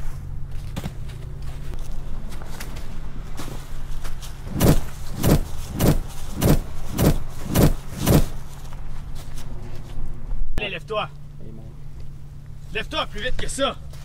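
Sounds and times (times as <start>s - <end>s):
steady low hum: 0.0s - 13.2s
punch hits: 4.5s - 8.3s.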